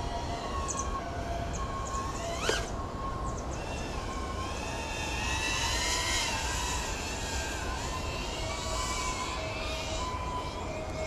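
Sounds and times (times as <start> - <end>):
drone motors whining: 0.0 - 11.0
low wind rumble: 0.0 - 11.0.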